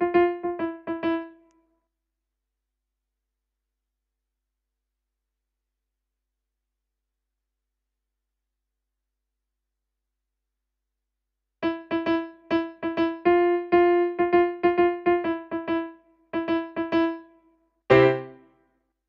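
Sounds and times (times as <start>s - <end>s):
piano note repeated: 11.6s - 17.2s, 17.9s - 18.4s.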